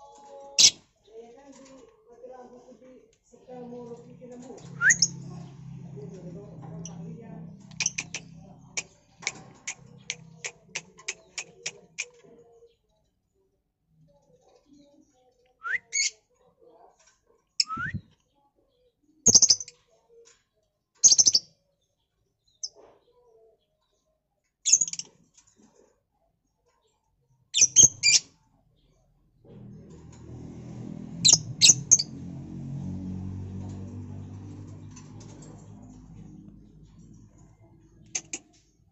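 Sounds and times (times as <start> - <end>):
lovebirds chirping: 6.8 - 13.0, 34.9 - 38.9.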